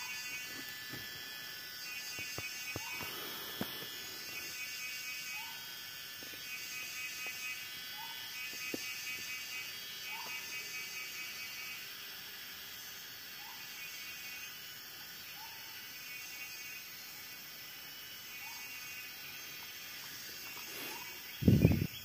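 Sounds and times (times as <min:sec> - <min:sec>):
insect drone: 0:00.0 - 0:22.0.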